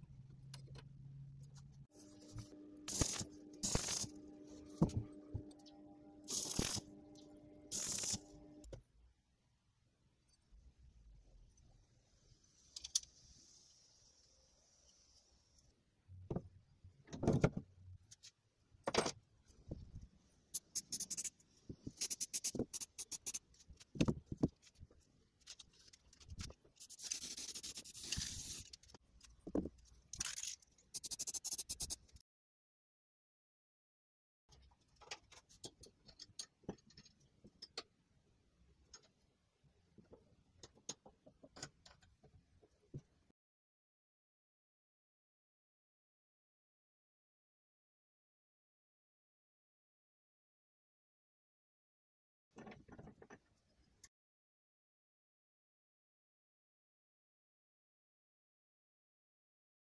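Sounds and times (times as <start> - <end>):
welder steady hum: 2.0 - 8.7
spray can mixing ball rattling: 2.9 - 4.1, 6.3 - 6.8, 7.7 - 8.2, 26.8 - 28.8, 30.2 - 32.0
arc welding crackle: 2.9 - 4.2, 6.3 - 6.9, 7.7 - 8.3
spray can hissing: 2.9 - 4.2, 6.3 - 6.9, 7.7 - 8.3, 20.8 - 21.3, 22.0 - 23.4, 26.8 - 28.6, 30.9 - 32.0.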